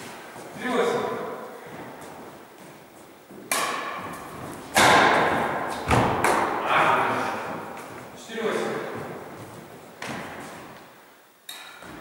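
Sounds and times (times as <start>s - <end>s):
badminton racket striking shuttlecock: 3.4s - 6.6s.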